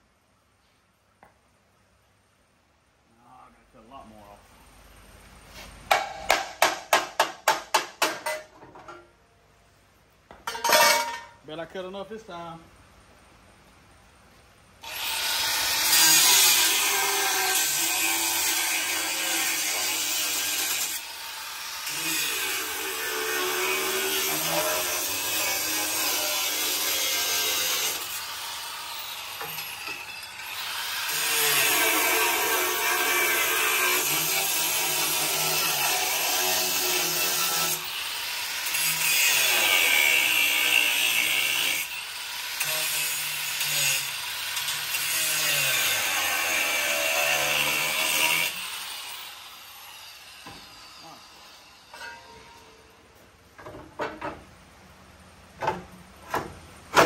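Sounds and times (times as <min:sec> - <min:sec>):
angle grinder cutting steel: 0:14.8 - 0:52.9.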